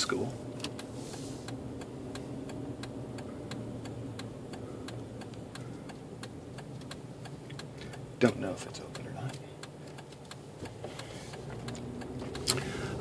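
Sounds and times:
car engine hum: 0.0s - 13.0s
turn signal clicking: 0.0s - 13.0s.

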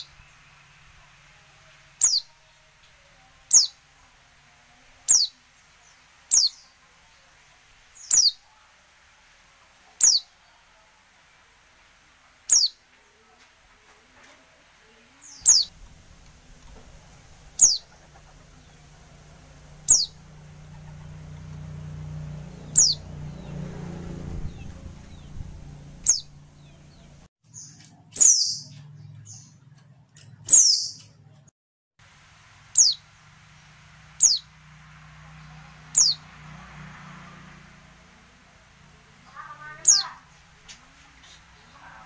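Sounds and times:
faint low hum: 12.9s - 27.3s.

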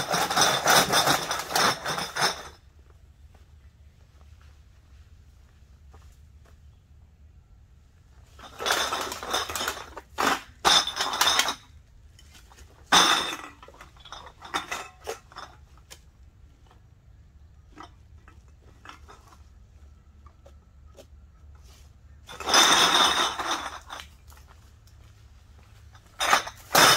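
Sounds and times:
cans and bottles clinking in bag: 0.0s - 2.6s, 8.3s - 15.9s, 21.6s - 24.5s, 25.8s - 26.9s.

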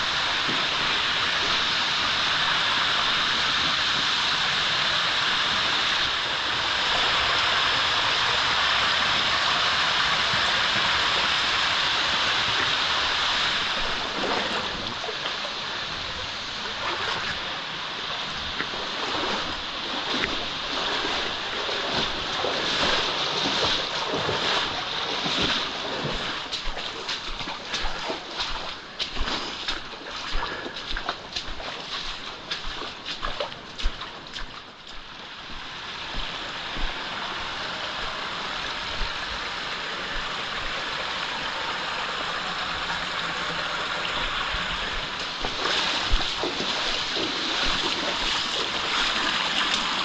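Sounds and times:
water splashes and knocks: 0.0s - 1.8s, 10.0s - 17.5s, 18.4s - 37.1s, 42.7s - 50.0s
waterfall and creek rushing: 0.0s - 50.0s.

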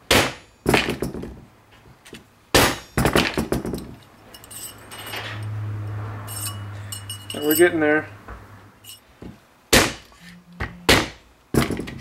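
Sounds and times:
light metallic clinks: 3.8s - 8.0s, 8.8s - 9.0s.

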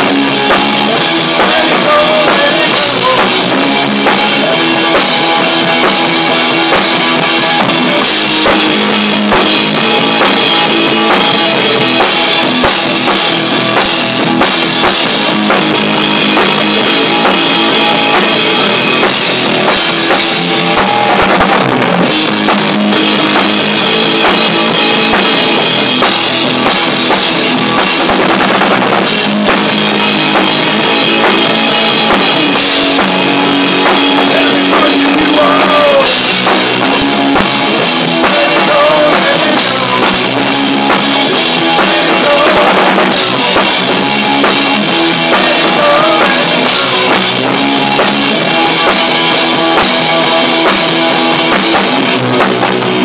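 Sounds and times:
drum kit: 0.0s - 53.0s
electric bass: 0.0s - 53.0s
electric guitar: 0.0s - 53.0s.

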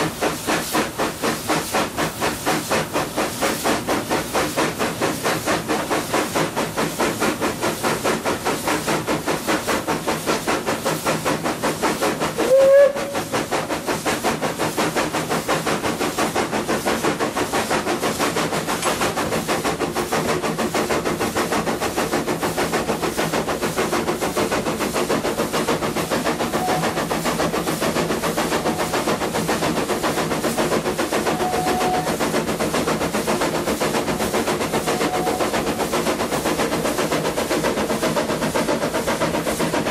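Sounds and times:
steam locomotive chuffing: 0.0s - 39.9s
steam whistle blast: 12.4s - 13.3s, 26.6s - 27.0s, 31.3s - 32.2s, 34.8s - 35.6s.

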